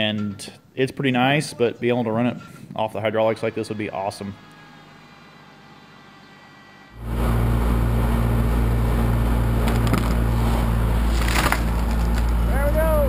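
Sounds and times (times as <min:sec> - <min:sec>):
crane machine drone: 0:04.4 - 0:13.0
brief crackles: 0:11.1 - 0:12.4.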